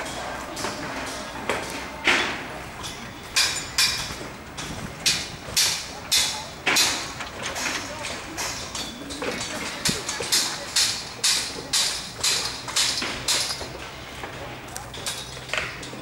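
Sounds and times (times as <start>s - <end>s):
metal knocks on scaffolding: 3.4s - 13.8s.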